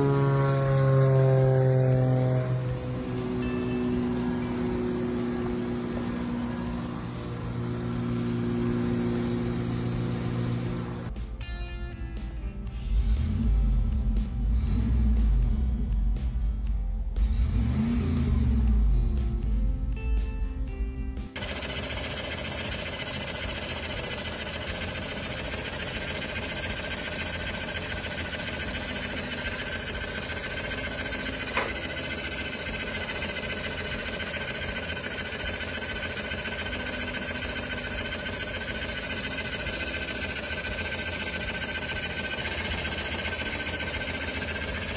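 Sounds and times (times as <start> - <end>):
high whine: 0.0 - 11.1, 21.4 - 44.9
car engine running: 0.0 - 11.2, 21.4 - 44.9.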